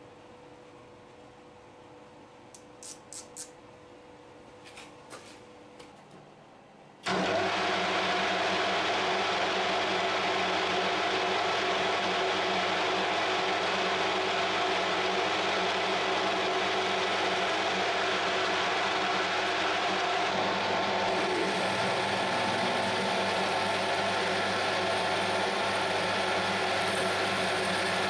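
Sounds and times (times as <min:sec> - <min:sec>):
lathe running whirr: 0:07.0 - 0:28.0.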